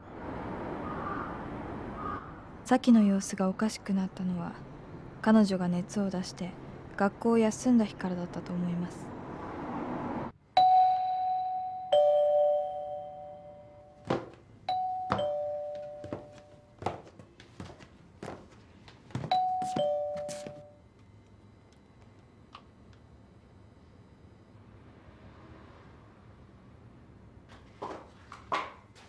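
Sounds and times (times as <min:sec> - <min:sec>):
two-tone doorbell chime: 0:10.6 - 0:14.1, 0:14.7 - 0:16.7, 0:19.2 - 0:20.8.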